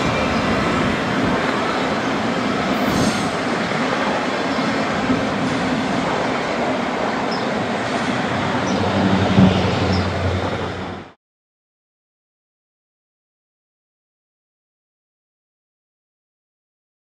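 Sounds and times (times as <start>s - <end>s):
freight train rumbling and rattling: 0.0s - 11.2s.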